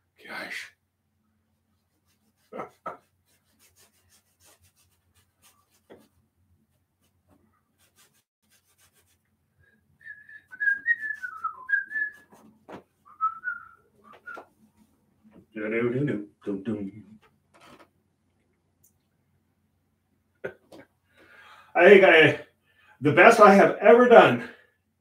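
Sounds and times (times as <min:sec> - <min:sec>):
paintbrush rubbing on canvas: 0:01.7 - 0:09.3
man whistling a tune: 0:10.0 - 0:12.2, 0:13.1 - 0:14.4.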